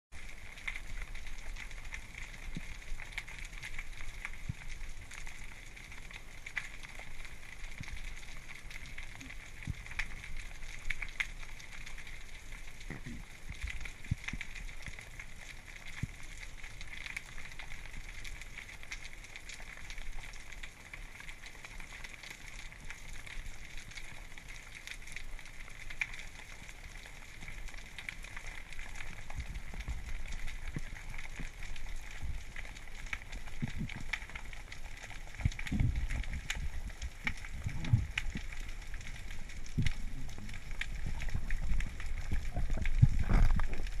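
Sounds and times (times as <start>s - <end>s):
underwater crackling and fizzing: 0.1s - 44.0s
low rumble: 35.4s - 44.0s.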